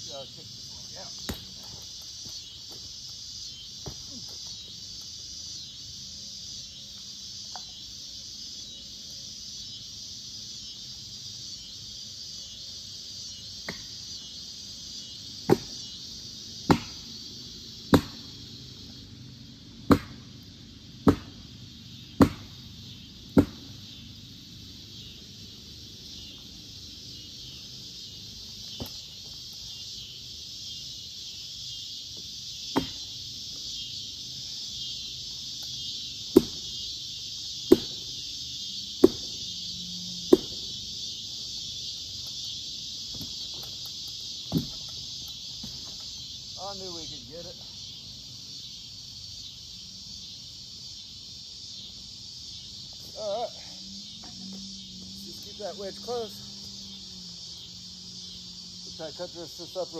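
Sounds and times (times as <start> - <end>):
crickets chirring: 0.0 - 59.9
hammer striking log: 15.5 - 15.8, 16.7 - 17.0, 17.9 - 18.2, 19.9 - 20.2, 21.0 - 21.4, 22.2 - 22.6, 23.4 - 23.7, 32.7 - 33.0, 36.3 - 36.6, 37.7 - 38.0, 39.0 - 39.4, 40.3 - 40.6, 44.5 - 44.8.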